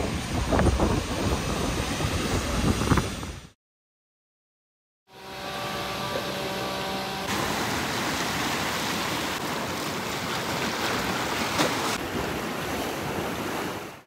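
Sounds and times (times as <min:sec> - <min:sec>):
ocean surf washing: 0:00.0 - 0:03.6, 0:07.2 - 0:14.0
wind on microphone: 0:00.0 - 0:03.6.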